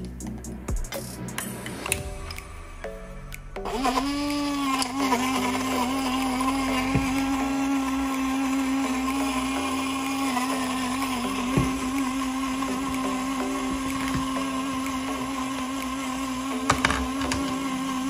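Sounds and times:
blender motor running: 0:03.6 - 0:18.0.

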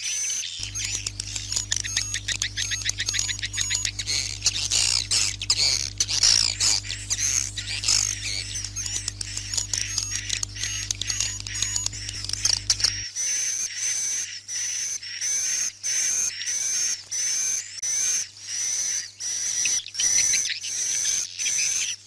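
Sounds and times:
swiftlet twittering chirps: 0:00.3 - 0:17.3.

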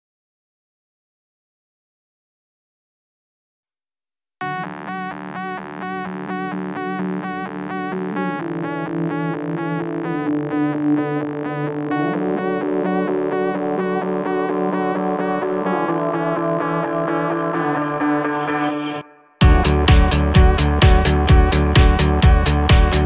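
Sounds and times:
synthesizer pulsing chord: 0:04.5 - 0:23.0
sustained synth notes: 0:04.6 - 0:23.0.

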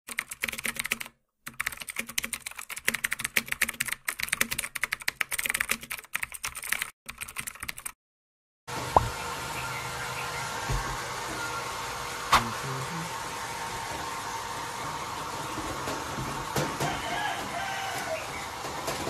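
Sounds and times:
keyboard typing: 0:00.1 - 0:08.0.

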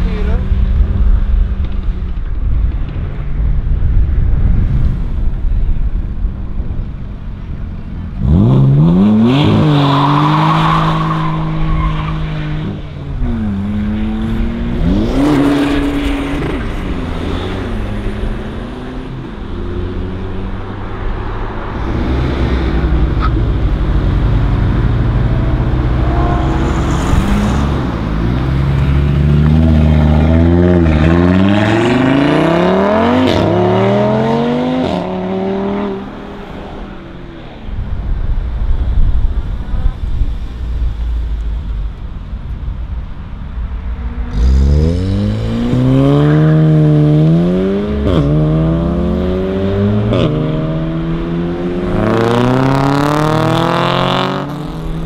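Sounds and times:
cars accelerating hard: 0:08.1 - 0:37.6, 0:44.2 - 0:55.0
tyre squeal: 0:25.8 - 0:27.8.

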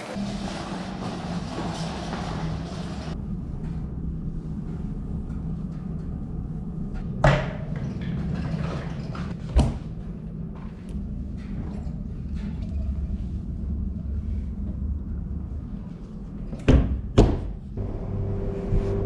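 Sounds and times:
laundry machines humming: 0:00.0 - 0:12.5, 0:17.7 - 0:19.0.

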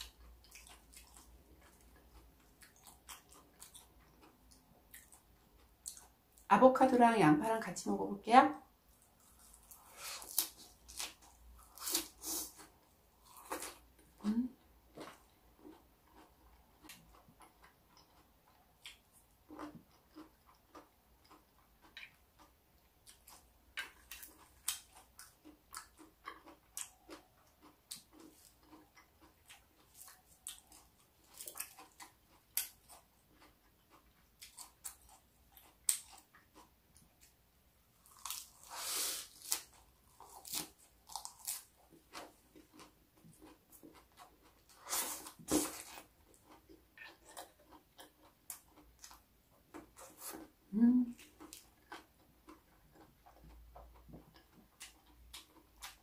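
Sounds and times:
chewing crisp salad: 0:00.0 - 0:06.5, 0:08.8 - 0:56.0.

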